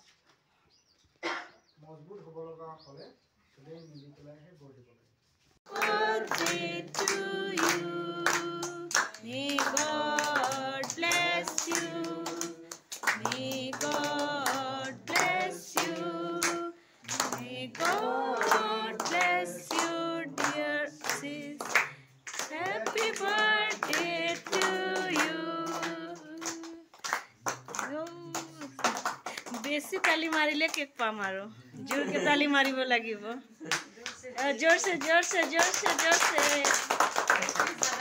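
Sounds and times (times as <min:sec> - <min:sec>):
people singing: 0:05.7 - 0:26.9, 0:37.4 - 0:38.0
hand-clapping on a steady beat: 0:05.7 - 0:31.4, 0:33.7 - 0:38.0.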